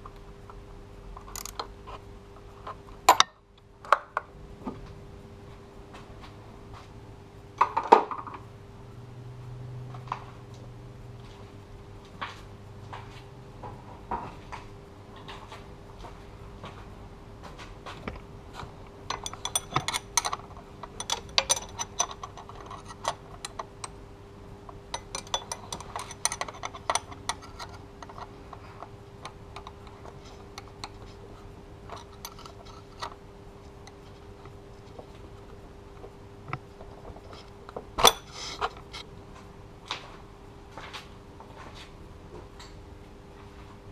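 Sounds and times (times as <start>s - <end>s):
wrench clinking on metal bolt: 3.1s - 3.3s, 19.1s - 23.7s, 25.0s - 28.2s.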